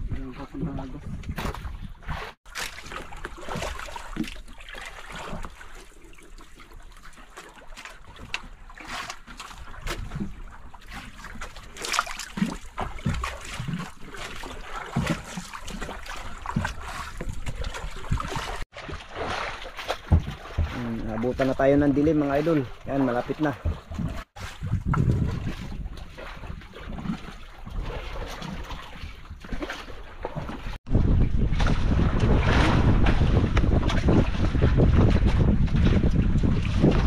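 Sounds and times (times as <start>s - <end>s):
wind on microphone: 0.0s - 2.4s, 23.8s - 29.4s, 30.9s - 37.0s
water splashing against boat hull: 0.0s - 37.0s.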